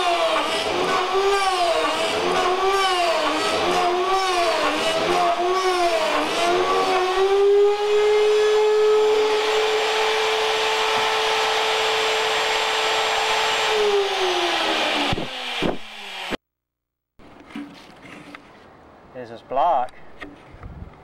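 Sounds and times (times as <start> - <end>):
router motor whining: 0.0 - 16.4.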